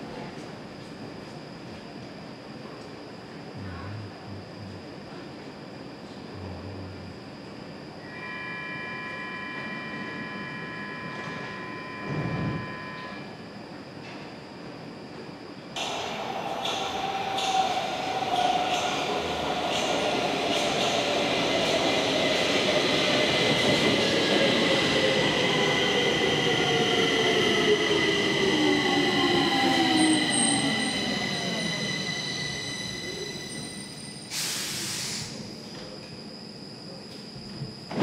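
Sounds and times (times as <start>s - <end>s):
electric train motor whine: 8.0s - 13.4s
short air hiss: 34.3s - 35.4s.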